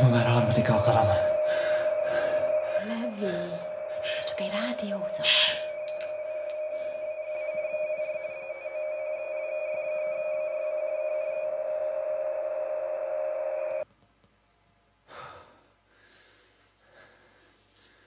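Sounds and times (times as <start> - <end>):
piercing electronic ringing tone: 0.0 - 13.8
warbling high tone: 0.0 - 13.8.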